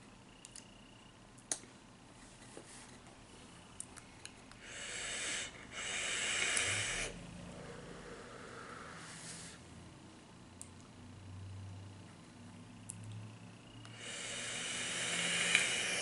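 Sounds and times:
vape hiss with coil sizzle: 0:04.6 - 0:07.2, 0:13.8 - 0:16.0.

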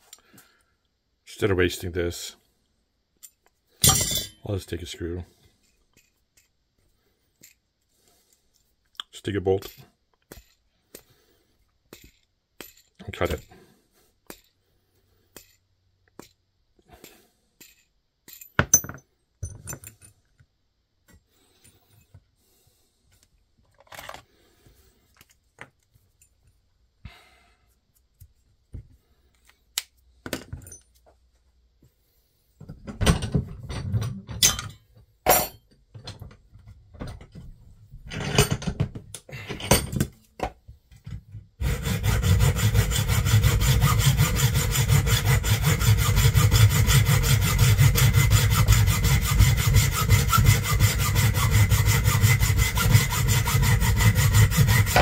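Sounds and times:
metal parts clinking: 0:03.2 - 0:04.4
hacksaw cutting bolt: 0:41.6 - 0:55.0.

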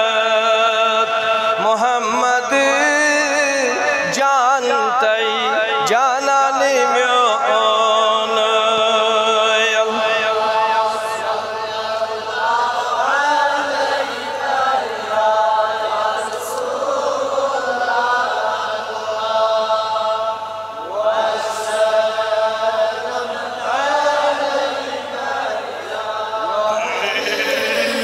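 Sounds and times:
men chanting devotional song: 0:00.0 - 0:28.0.

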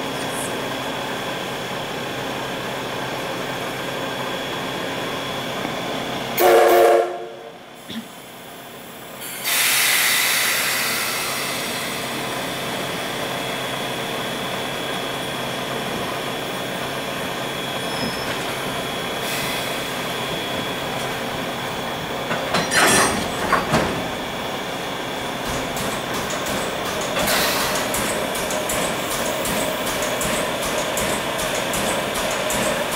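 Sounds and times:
steam locomotive hissing steam: 0:06.4 - 0:22.2, 0:24.1 - 0:32.9.

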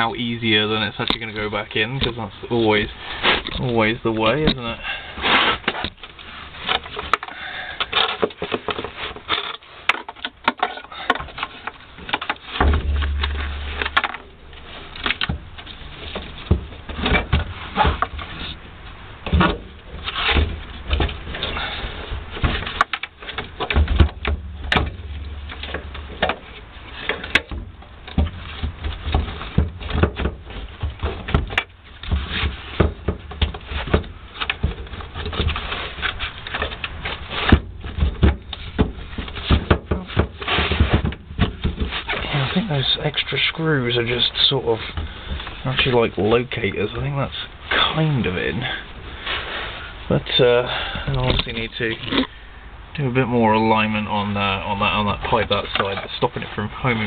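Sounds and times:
metal housing knocks and scrapes: 0:12.0 - 0:18.4, 0:22.2 - 0:42.6
dull low thumps: 0:12.5 - 0:18.1, 0:23.6 - 0:34.8.

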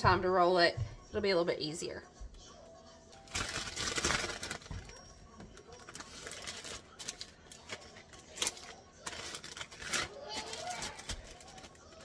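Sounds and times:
plastic bag crinkling: 0:03.2 - 0:12.0.

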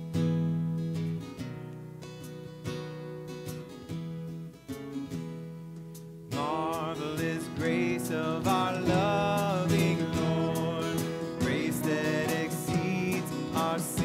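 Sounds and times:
voices singing a hymn: 0:06.4 - 0:14.0
worship band playing: 0:06.4 - 0:14.0.

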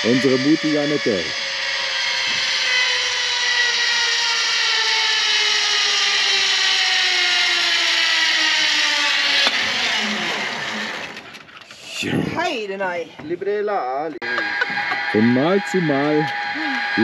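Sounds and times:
zipline pulleys whining on cable: 0:00.0 - 0:11.8, 0:14.2 - 0:17.0.

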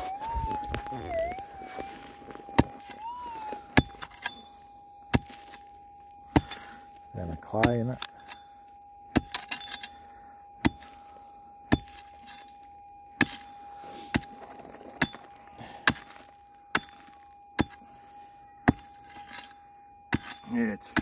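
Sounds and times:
faint steady tone: 0:00.0 - 0:21.0
pick striking gravel: 0:01.8 - 0:08.4, 0:09.1 - 0:12.6, 0:13.2 - 0:17.9.

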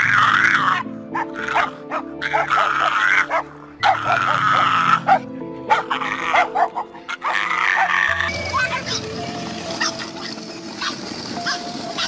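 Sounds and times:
dog howling: 0:00.0 - 0:09.1
dog yipping: 0:00.0 - 0:09.1, 0:09.8 - 0:12.0
background music: 0:00.0 - 0:12.0.

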